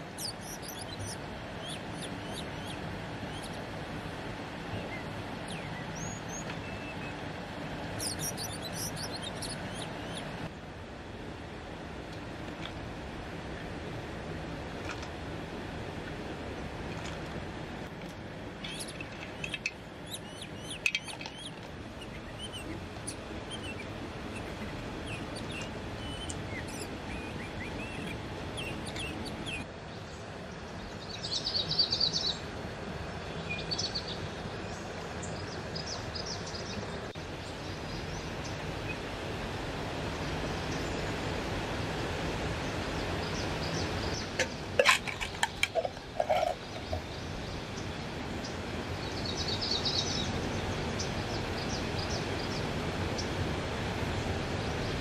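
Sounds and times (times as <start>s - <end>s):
birds chirping: 0.0s - 7.3s, 7.9s - 10.5s, 18.6s - 32.4s, 42.6s - 53.3s
forest stream flowing: 0.0s - 55.0s.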